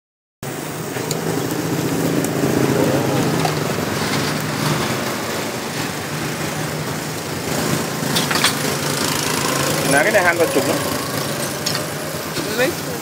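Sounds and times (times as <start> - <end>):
small engine humming: 7.8 - 13.0.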